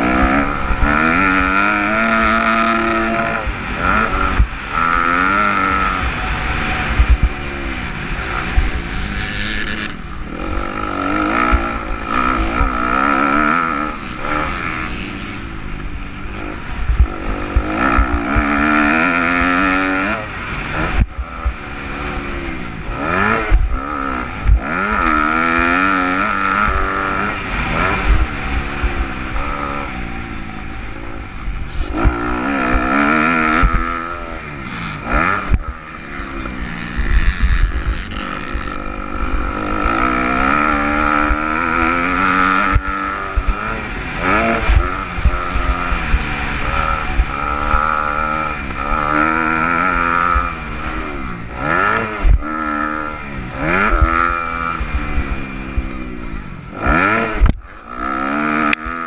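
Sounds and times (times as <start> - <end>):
motocross bike engine revving: 0.0 - 59.0
wind buffeting microphone: 5.4 - 14.0.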